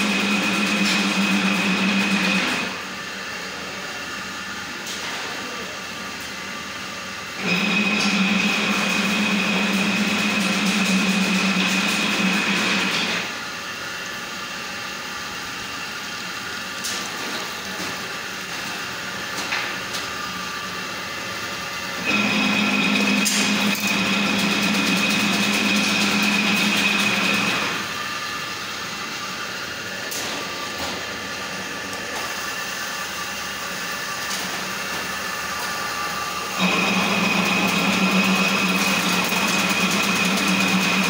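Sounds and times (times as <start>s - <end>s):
machine drone: 0.0s - 2.8s, 22.0s - 32.6s, 35.9s - 41.0s
machine whine: 0.0s - 2.8s, 7.3s - 13.4s, 22.0s - 41.0s.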